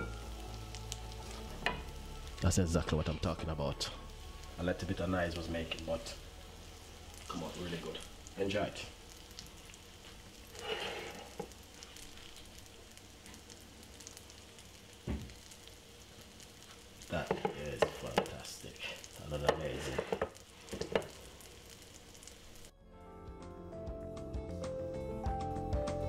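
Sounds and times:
food sizzling in a frying pan: 0.0s - 22.7s
irregular crackles and knocks: 9.1s - 22.7s.

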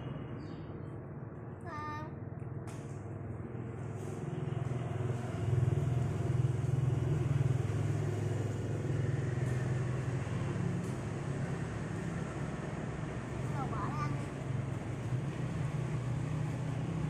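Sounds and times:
engine running steadily: 0.0s - 17.0s.

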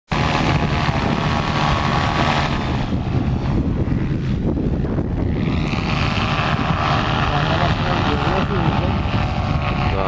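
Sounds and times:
paramotor engine buzzing: 0.1s - 10.0s.

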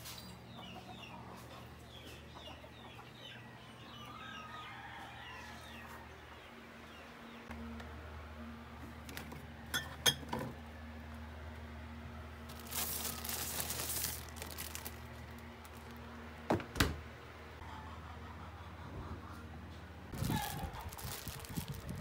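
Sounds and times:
steady low hum: 6.1s - 20.2s
glass bottles clinking: 9.7s - 10.5s
plastic bag rustling: 12.5s - 16.1s, 20.2s - 22.0s
fridge door thudding shut: 16.5s - 17.0s.

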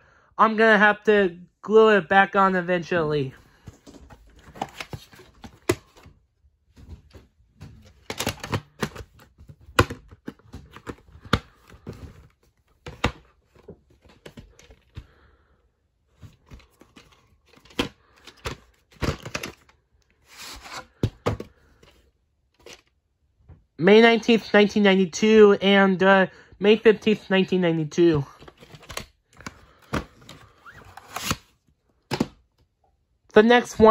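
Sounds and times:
plastic cases clicking and knocking: 7.6s - 15.0s, 16.5s - 19.7s, 32.0s - 32.6s.

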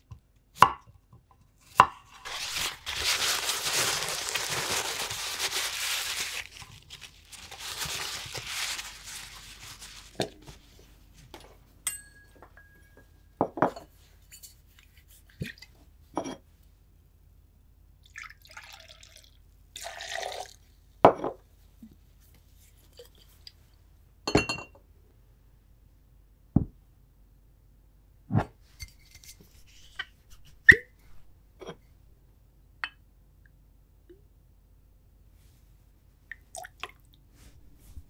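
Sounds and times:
glass and bottle knocks and clinks: 11.9s - 13.9s, 24.3s - 24.8s
liquid poured into a glass: 18.0s - 20.6s.

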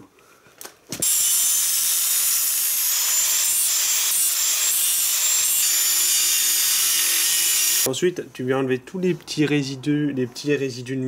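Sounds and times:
angle grinder grinding metal: 1.0s - 7.9s.

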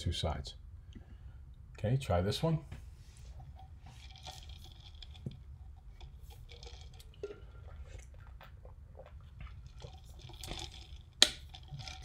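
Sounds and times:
low room hum: 0.0s - 12.0s
small clicks and rustles: 3.2s - 7.4s.

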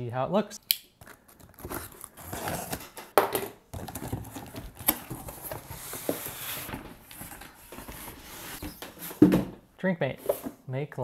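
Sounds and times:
paper packing rustling: 1.0s - 3.2s, 3.8s - 9.3s.

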